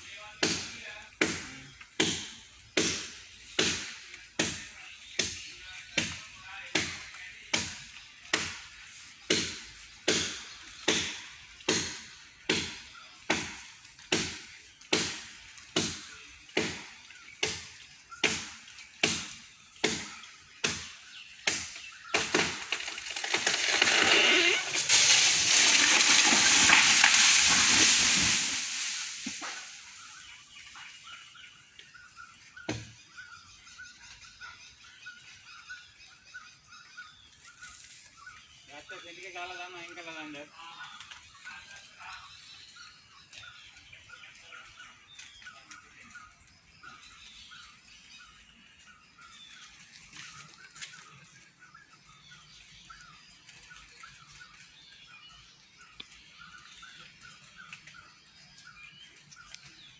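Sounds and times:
chopping wood: 0:00.3 - 0:28.5, 0:32.6 - 0:33.0.

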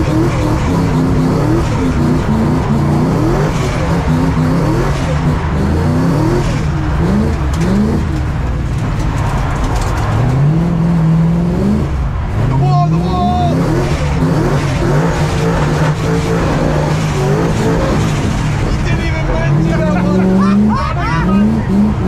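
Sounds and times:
car engine revving: 0:00.0 - 0:22.0.

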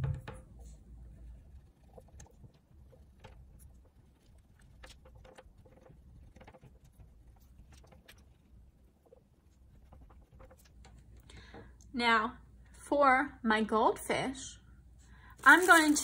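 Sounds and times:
crayon scratching on paper: 0:01.1 - 0:10.8.

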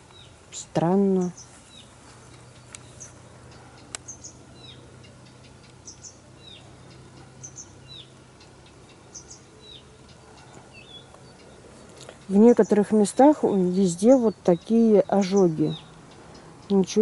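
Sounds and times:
songbirds chirping: 0:00.0 - 0:17.0.

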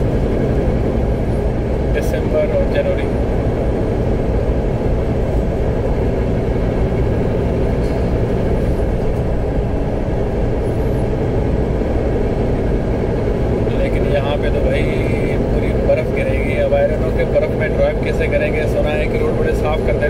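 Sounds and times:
truck engine and tyre drone: 0:00.0 - 0:20.0.

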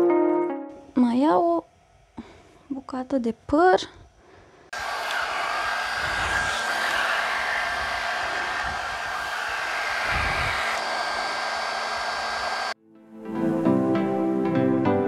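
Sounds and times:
hot-air brush running: 0:04.7 - 0:12.8.

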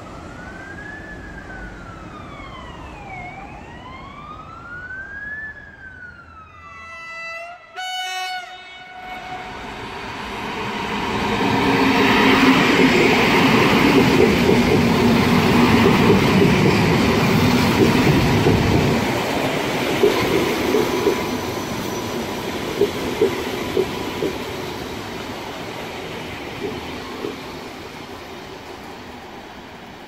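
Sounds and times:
train horn blast: 0:06.7 - 0:10.0
train passing rumble: 0:07.8 - 0:30.0.

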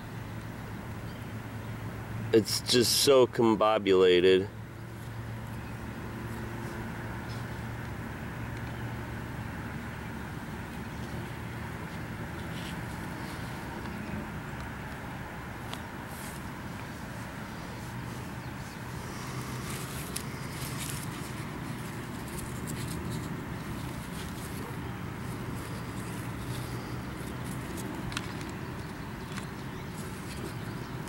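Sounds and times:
faint rustles: 0:10.7 - 0:15.0, 0:15.6 - 0:31.0.

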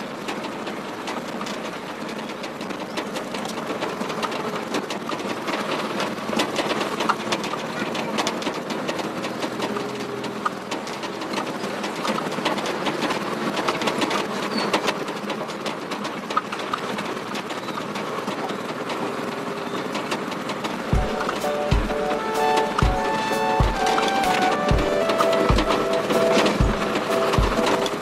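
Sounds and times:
truck engine running: 0:20.4 - 0:28.0.

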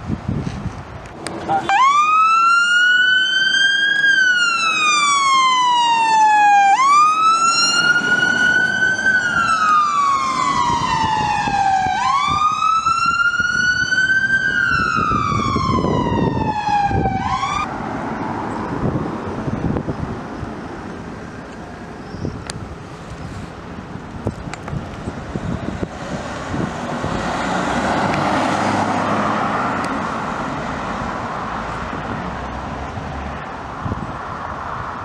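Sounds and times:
engine and road noise: 0:00.0 - 0:35.0
fire engine siren wailing: 0:01.3 - 0:17.8.

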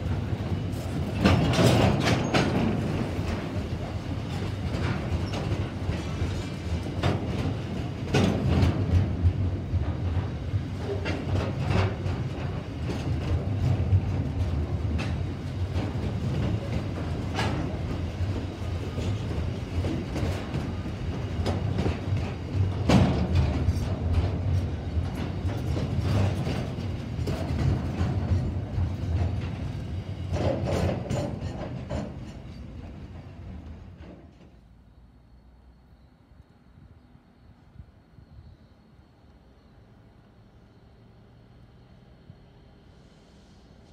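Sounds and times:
freight train wheels rumbling: 0:00.0 - 0:35.8.

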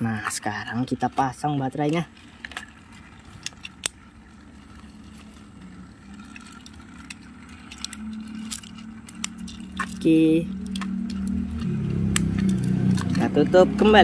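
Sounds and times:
faint toy motor hum: 0:00.0 - 0:14.0
batteries clicking into plastic: 0:04.7 - 0:13.2.

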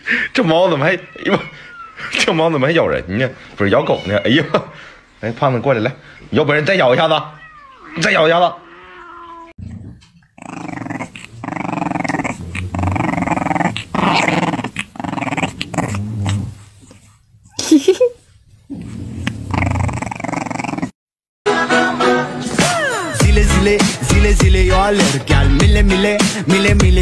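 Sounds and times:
puppy growling: 0:07.9 - 0:17.2, 0:18.7 - 0:21.0.

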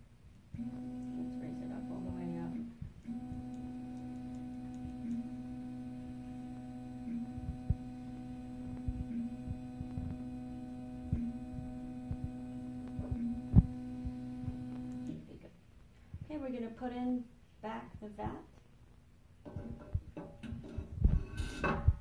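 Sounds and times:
stepper motor humming: 0:00.5 - 0:15.3.

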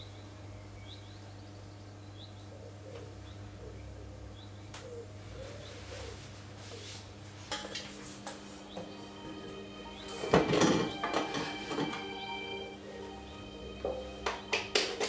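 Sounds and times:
pigeon cooing: 0:02.5 - 0:06.9.

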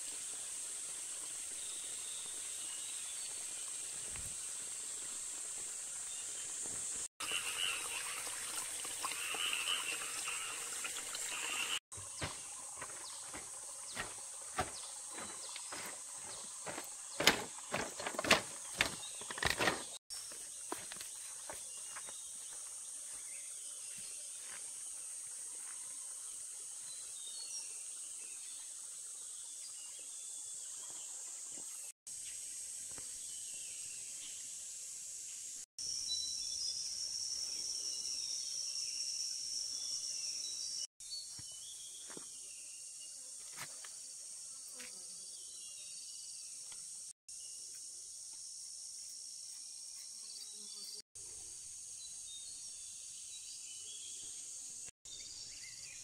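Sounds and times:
insects trilling: 0:00.0 - 0:08.4, 0:09.0 - 0:28.0, 0:31.3 - 0:56.0
lower-pitched insect trill: 0:32.1 - 0:56.0.

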